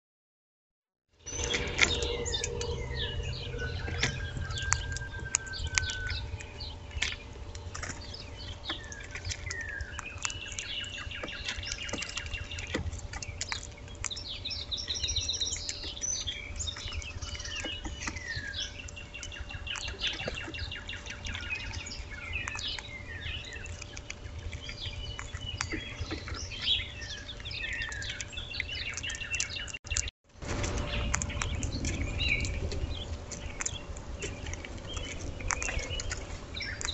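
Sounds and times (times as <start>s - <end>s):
songbirds chirping and singing: 1.2s - 36.9s
steady low rumble: 1.2s - 36.9s.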